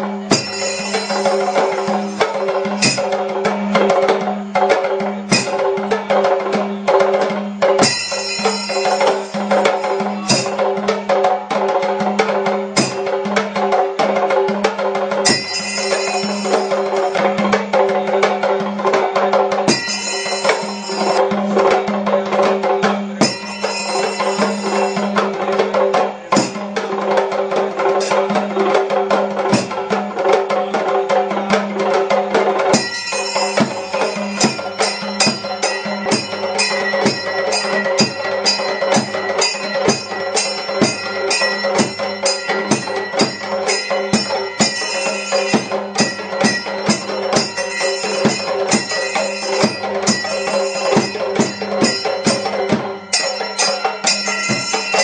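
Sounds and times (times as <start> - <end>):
hand drums played fast: 0.0 - 55.0
small hand cymbals: 0.0 - 55.0
bright metallic ringing: 0.3 - 3.4, 7.8 - 10.8, 15.1 - 17.5, 19.5 - 21.6, 23.2 - 25.8, 32.7 - 55.0.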